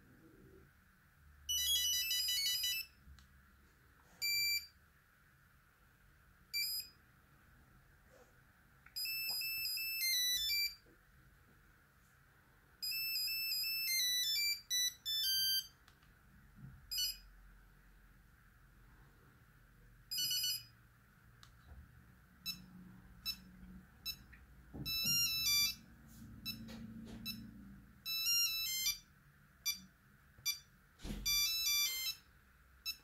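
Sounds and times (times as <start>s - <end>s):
phone beeping ringtone melodies: 1.5s - 3.0s, 4.2s - 4.7s, 9.0s - 10.8s, 12.8s - 15.8s, 16.9s - 17.3s, 20.1s - 20.8s, 22.4s - 29.1s, 31.3s - 33.0s.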